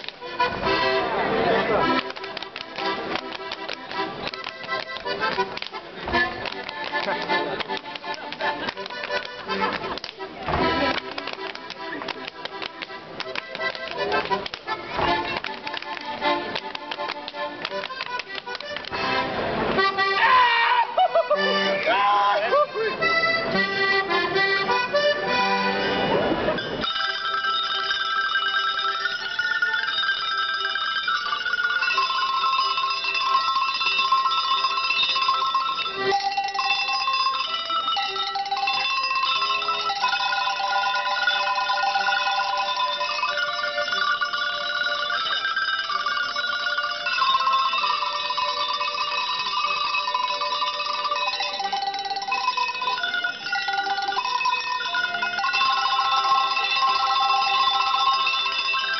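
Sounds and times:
band with accordion: 0.0 - 58.9
tuned cowbells ringing melody: 26.6 - 58.9.

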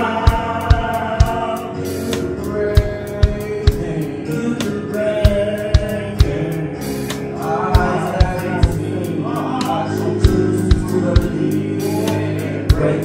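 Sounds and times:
electric keyboard chords: 0.0 - 13.0
man singing gospel: 0.0 - 13.0.

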